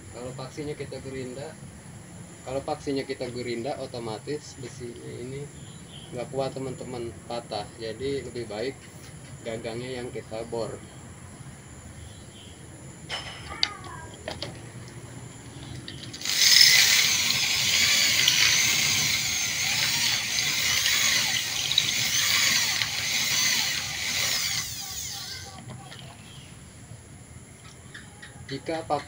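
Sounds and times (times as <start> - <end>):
electric drill grinding metal: 16.1 - 25.6.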